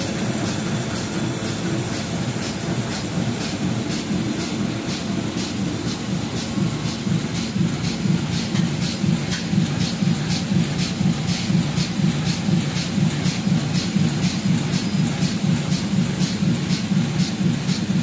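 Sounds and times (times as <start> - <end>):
printing press running: 0.0 - 18.0.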